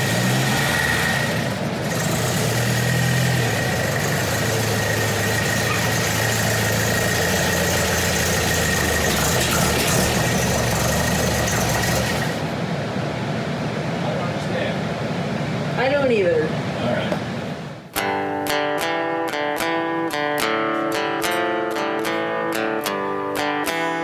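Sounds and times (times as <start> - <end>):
car engine running slowly: 0.0 - 12.6
steady high whine: 0.0 - 24.0.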